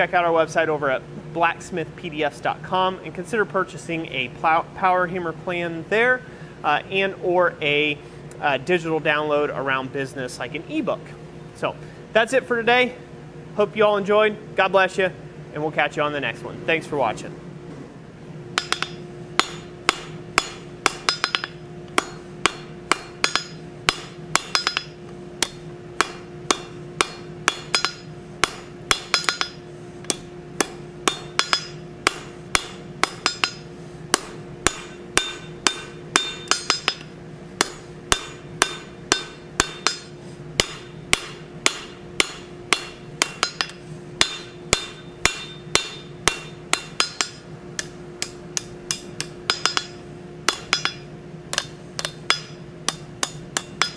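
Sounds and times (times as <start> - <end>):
steady hum: 0.0 - 53.9
hammer striking steel on anvil: 18.6 - 53.9.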